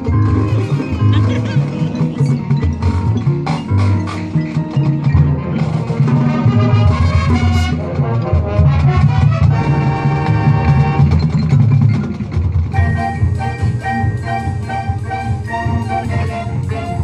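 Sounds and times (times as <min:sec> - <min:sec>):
drums: 0:00.0 - 0:17.0
mallet percussion: 0:00.0 - 0:17.0
marching band playing: 0:00.0 - 0:17.0
brass: 0:05.2 - 0:11.6, 0:12.7 - 0:17.0.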